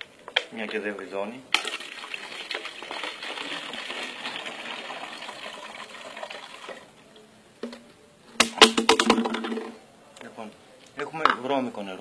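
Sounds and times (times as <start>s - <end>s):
water pouring through funnel into bottle: 1.5s - 6.9s.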